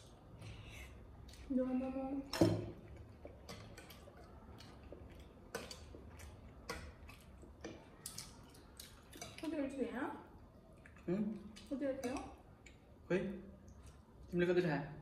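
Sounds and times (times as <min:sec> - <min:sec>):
chewing: 0:02.8 - 0:09.5, 0:10.4 - 0:12.9.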